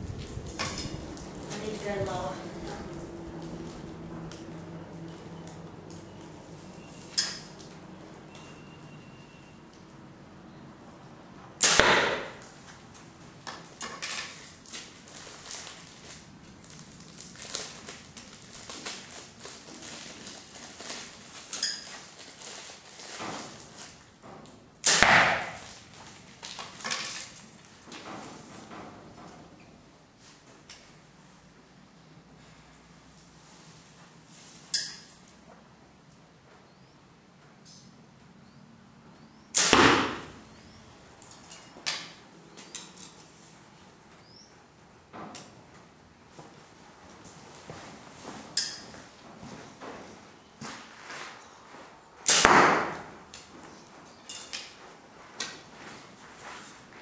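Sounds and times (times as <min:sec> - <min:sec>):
brief ringing tone: 0:08.4 - 0:09.5
arrows striking foam target: 0:11.6 - 0:12.5, 0:24.8 - 0:25.8, 0:39.5 - 0:40.4, 0:52.2 - 0:53.2.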